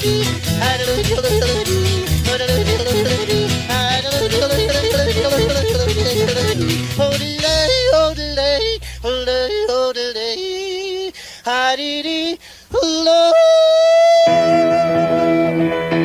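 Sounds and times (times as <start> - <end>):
person yodeling: 0.0 - 11.7, 12.7 - 15.6.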